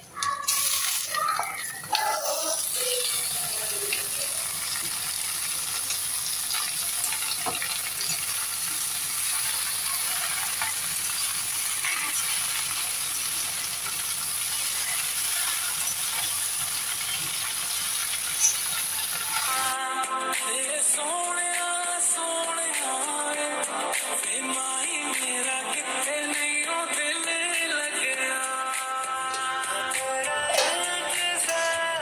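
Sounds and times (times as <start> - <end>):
greens sizzling in hot oil: 0.5 - 19.8.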